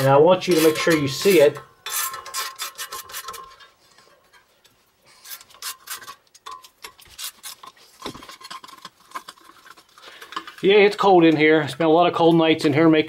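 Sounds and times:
metal scraping: 0:00.0 - 0:12.0.

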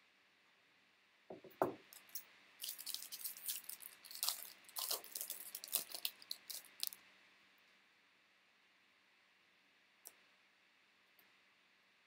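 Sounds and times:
foil wrapper crinkling: 0:02.6 - 0:07.0.

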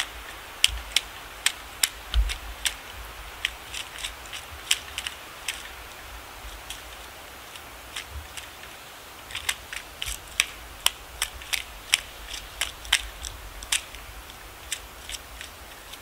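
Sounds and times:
woodpecker tapping on bark: 0:00.0 - 0:05.8, 0:09.3 - 0:16.0.

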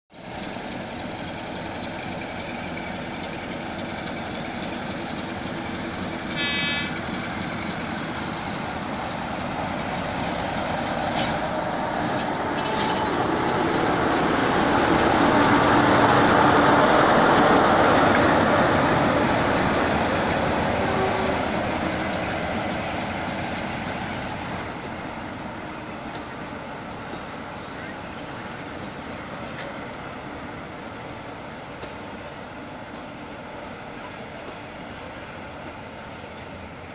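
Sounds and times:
train coaches rolling by: 0:00.1 - 0:36.9
diesel locomotive engine passing: 0:00.2 - 0:36.9
locomotive horn toot: 0:06.3 - 0:07.0, 0:20.8 - 0:21.5.

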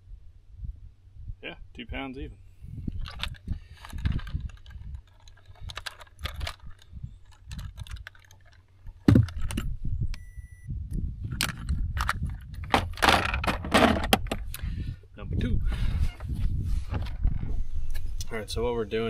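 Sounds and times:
plastic grip clicks and rattles: 0:02.9 - 0:09.7, 0:11.3 - 0:14.6
short electronic beep: 0:10.1 - 0:10.7.

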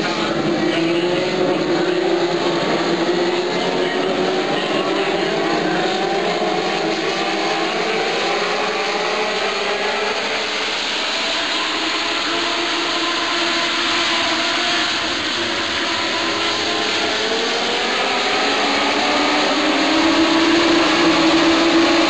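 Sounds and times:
race car engines droning: 0:00.0 - 0:22.0.

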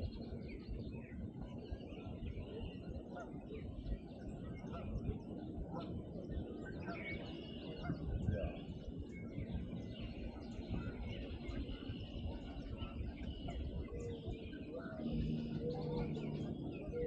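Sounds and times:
songbirds singing and chirping: 0:00.0 - 0:17.0
steady low rumble: 0:07.9 - 0:17.0.

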